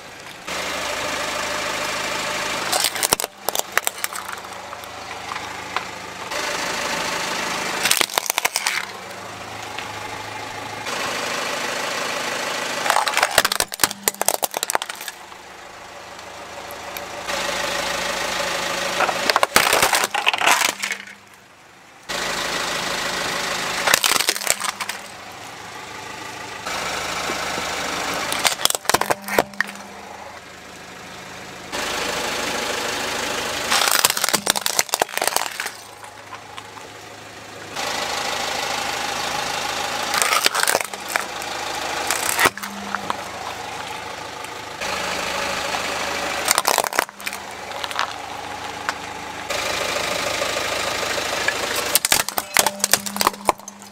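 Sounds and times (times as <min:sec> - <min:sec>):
car engine running: 0:00.0 - 0:53.9
toy cars crunching under tyre: 0:02.4 - 0:10.0, 0:12.7 - 0:15.4, 0:18.8 - 0:21.4, 0:23.8 - 0:25.2, 0:27.2 - 0:30.2, 0:33.6 - 0:37.9, 0:40.0 - 0:49.8, 0:51.4 - 0:53.9.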